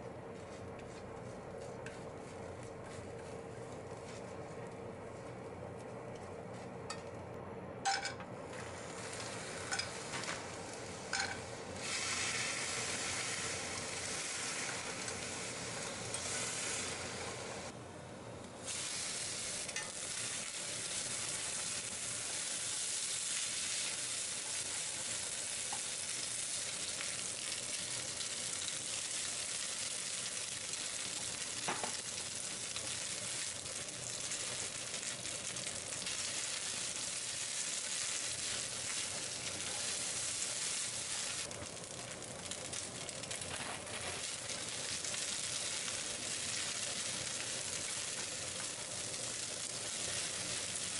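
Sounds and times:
chopsticks tapping a pan: 7.8 - 8.2, 11.1 - 11.4
food sizzling in a frying pan: 7.8 - 17.7, 18.6 - 50.9.

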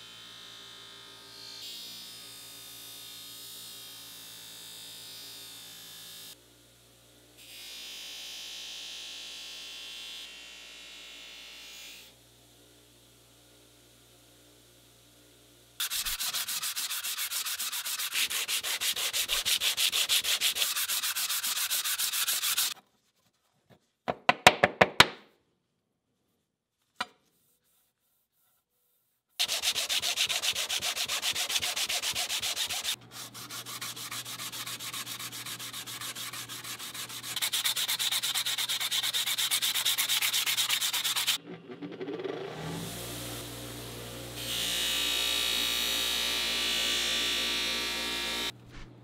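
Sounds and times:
sanding block scraping steel: 15.8 - 22.8, 27.3 - 41.4.

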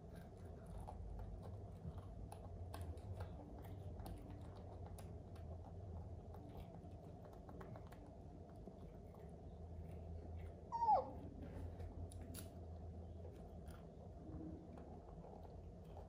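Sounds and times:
low steady hum: 0.0 - 16.0
baby monkey squeak: 10.7 - 11.2.

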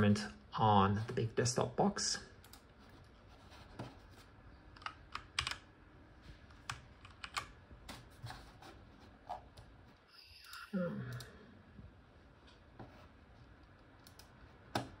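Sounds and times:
mouse and keyboard clicking: 6.6 - 8.0.

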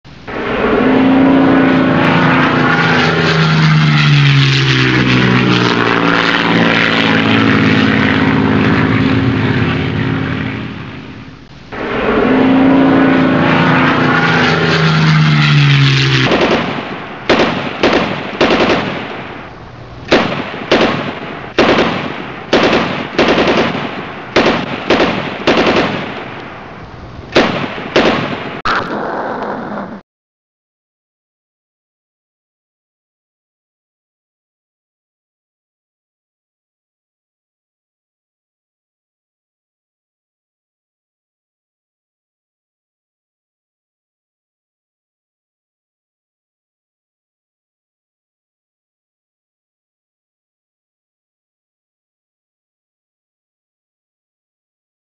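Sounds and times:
propeller engines passing: 0.1 - 30.0
gunfire bangs: 16.2 - 19.4, 20.1 - 26.4, 27.3 - 29.0.

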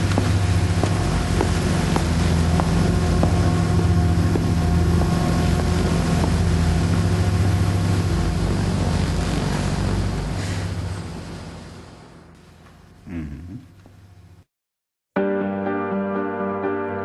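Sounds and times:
rushing wind: 0.0 - 12.2
low engine drone: 0.0 - 13.8.

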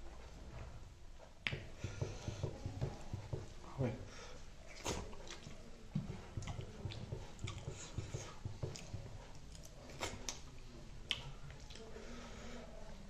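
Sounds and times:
chewing and wet mouth smacks: 4.7 - 5.6, 8.7 - 11.9.

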